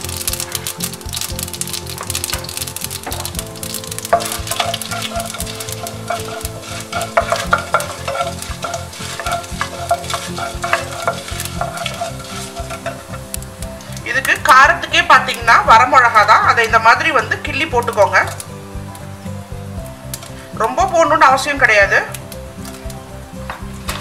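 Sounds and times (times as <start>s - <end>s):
wooden spatula scraping pan: 0.0s - 18.5s
seeds sizzling in hot oil: 0.0s - 24.0s.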